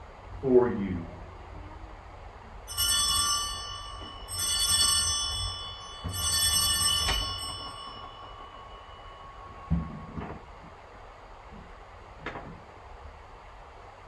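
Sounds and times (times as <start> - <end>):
altar bells ringing: 2.7 - 11.1.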